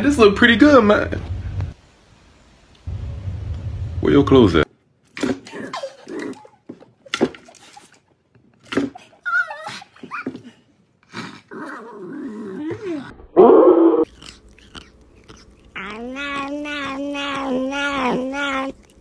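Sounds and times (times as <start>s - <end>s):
small dog growling and snarling: 5.4s - 6.6s, 9.3s - 19.0s.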